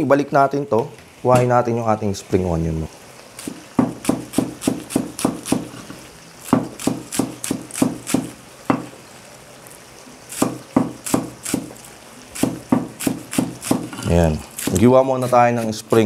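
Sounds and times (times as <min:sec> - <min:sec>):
cleaver chopping on wooden block: 0:03.8 - 0:05.7, 0:10.4 - 0:11.6, 0:12.4 - 0:13.9.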